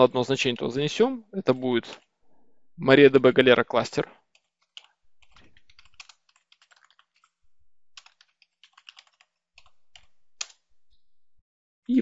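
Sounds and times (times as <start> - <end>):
typing on computer keyboard: 4.3 - 11.3.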